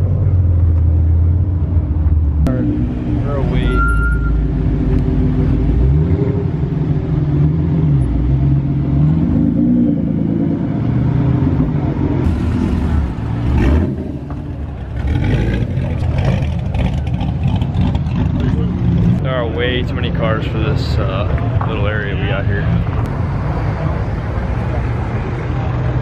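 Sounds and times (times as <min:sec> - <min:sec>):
car engine revving: 0:02.0 - 0:26.0
exhaust crackling: 0:10.6 - 0:24.4.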